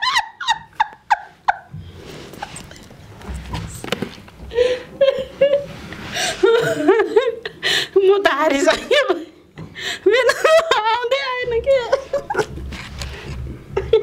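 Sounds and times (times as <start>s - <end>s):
people laughing: 0.0s - 1.7s, 10.0s - 12.7s
muffled rubbing and mouth noise: 1.5s - 4.4s, 11.8s - 14.0s.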